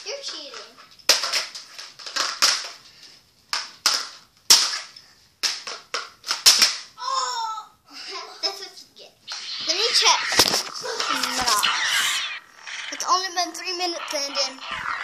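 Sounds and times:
plastic toy swords clacking: 0:03.5 - 0:06.8.

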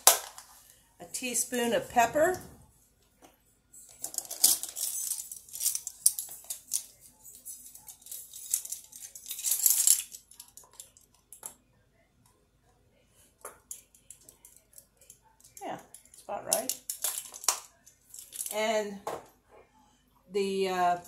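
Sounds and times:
plastic measuring spoons clattering: 0:03.9 - 0:11.6, 0:13.4 - 0:18.7.

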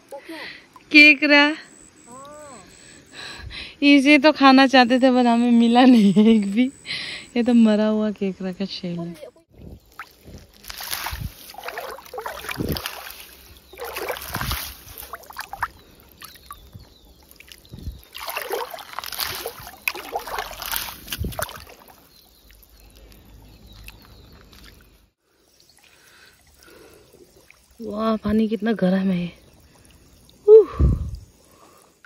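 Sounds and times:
water splashing around wading feet: 0:09.7 - 0:24.9.

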